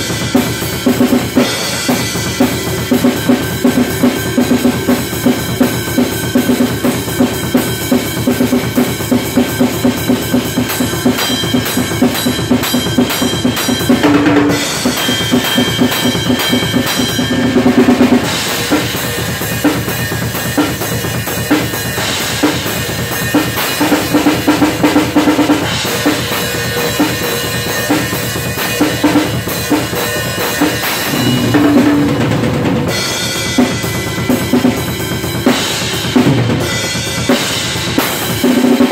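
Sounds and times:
drum kit groove: 0.0s - 38.9s
tom fills: 31.0s - 33.0s.

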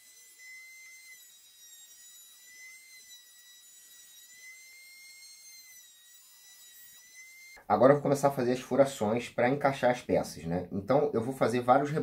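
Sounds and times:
router high whine: 0.0s - 7.6s.

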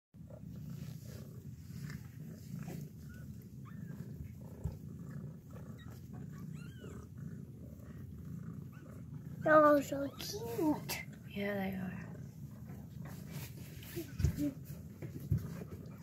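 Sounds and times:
cat purring: 0.2s - 16.0s
kittens mewing: 5.5s - 7.2s, 8.6s - 11.1s.

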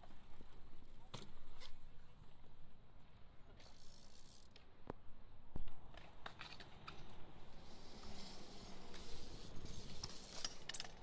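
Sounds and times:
bmx bike rolling on concrete: 0.0s - 11.0s.

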